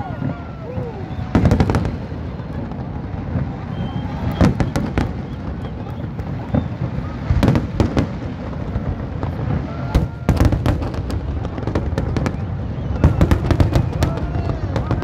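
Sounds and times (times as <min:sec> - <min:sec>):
fireworks bursting bangs: 0:00.0 - 0:15.0.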